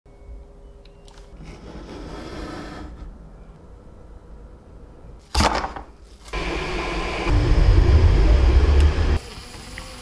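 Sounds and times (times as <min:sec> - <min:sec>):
deep low hum: 0:06.8 - 0:09.2.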